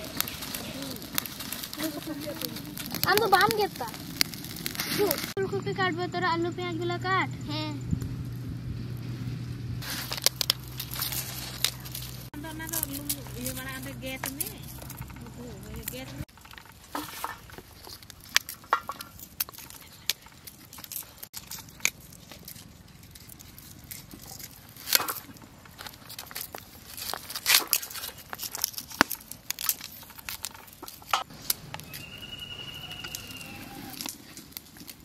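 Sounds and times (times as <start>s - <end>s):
cauliflower snapping and tearing: 0.0s - 5.4s, 9.8s - 13.6s, 17.8s - 32.1s, 33.3s - 35.0s
leaves crackling: 0.0s - 5.4s, 8.2s - 35.0s
high trilling call: 31.8s - 34.1s.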